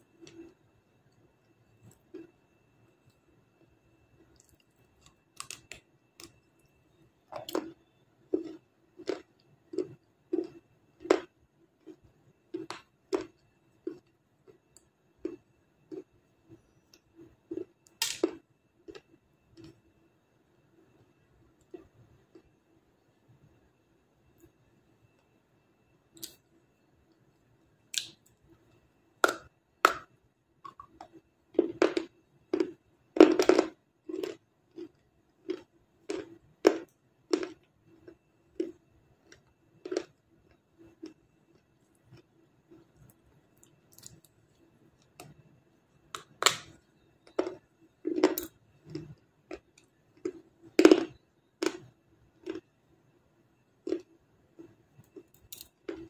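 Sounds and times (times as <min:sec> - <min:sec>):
faint steady hum: 0:00.0 - 0:56.0
chewing crunches: 0:04.3 - 0:06.4, 0:07.3 - 0:16.2, 0:16.9 - 0:19.8, 0:30.7 - 0:44.4, 0:46.2 - 0:52.7, 0:53.8 - 0:56.0.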